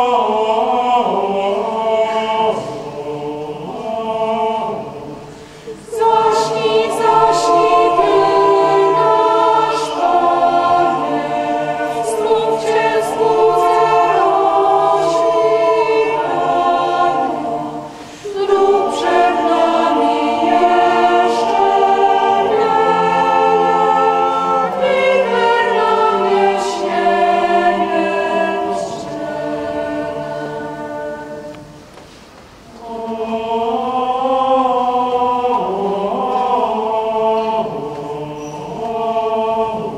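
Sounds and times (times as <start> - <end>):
mixed choir singing a carol: 0.0 - 39.9.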